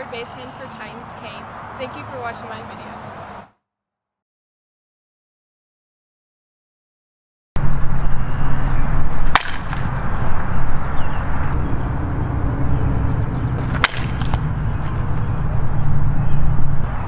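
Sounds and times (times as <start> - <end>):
low hum: 7.6 - 17.0
outdoor rumble: 7.6 - 17.0
softball bat hitting ball: 9.2 - 10.0, 13.6 - 15.1.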